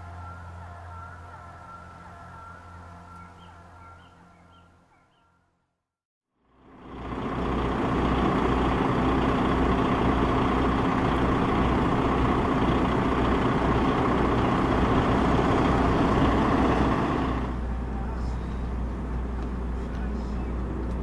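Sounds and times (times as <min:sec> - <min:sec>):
truck diesel engine idling: 0:06.4 - 0:21.0.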